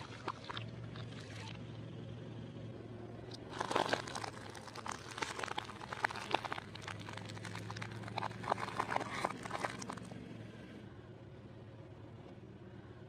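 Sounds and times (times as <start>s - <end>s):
low steady hum: 0.0s - 13.0s
tyre crushing fruit and vegetables: 3.4s - 10.1s.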